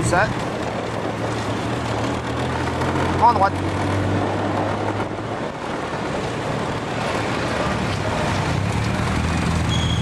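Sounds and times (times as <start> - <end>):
wind rushing over microphone: 0.0 - 9.7
vehicle engine running: 0.0 - 10.0.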